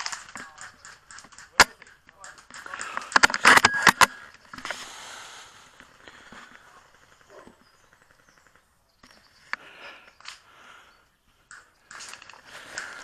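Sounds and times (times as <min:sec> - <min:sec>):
rifle bolt clicks and clacks: 0:00.0 - 0:04.7.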